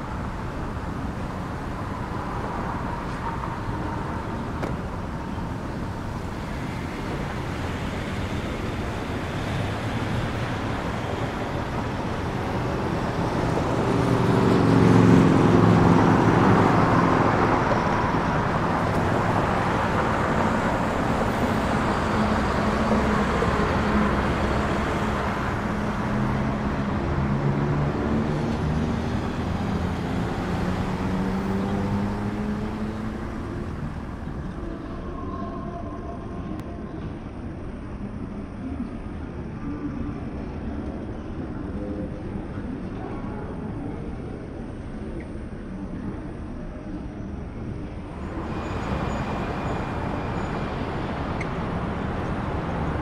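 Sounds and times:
vehicle engine rumbling: 0.0 - 35.2, 46.0 - 53.0.

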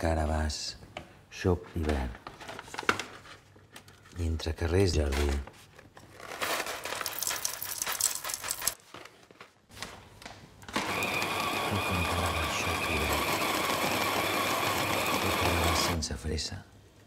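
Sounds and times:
coffee beans rattling: 6.3 - 8.8
coffee grinder whining: 10.7 - 16.0.

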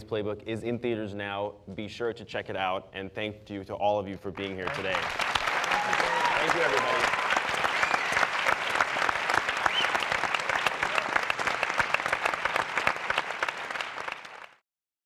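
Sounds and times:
audience applauding: 4.6 - 14.6.

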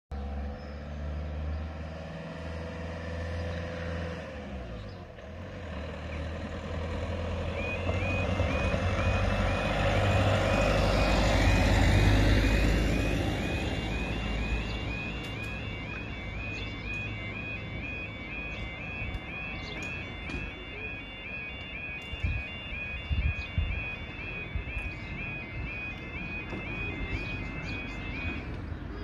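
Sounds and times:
van passing: 0.1 - 29.0
two-tone crossing alarm: 6.7 - 29.0.

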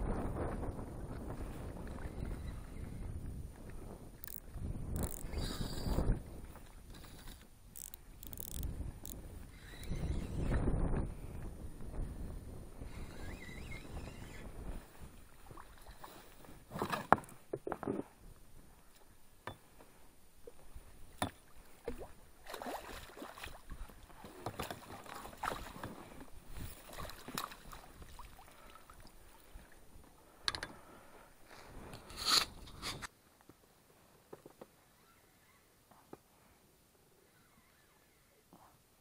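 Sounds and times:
water splashing and sloshing: 13.1 - 33.1.

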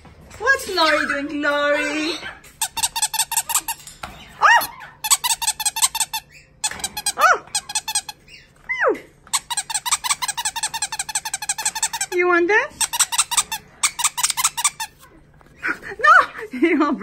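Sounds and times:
rubber squeaky toy squeaking: 1.8 - 3.8, 4.6 - 8.6, 9.3 - 15.1.

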